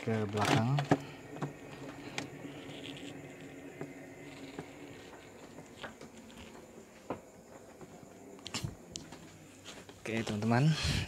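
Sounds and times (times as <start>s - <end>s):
refrigerator humming: 0.0s - 11.0s.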